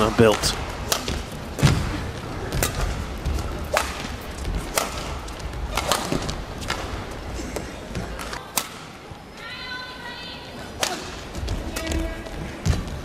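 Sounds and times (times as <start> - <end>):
rackets striking shuttlecock: 0.3 - 1.8, 2.5 - 7.0.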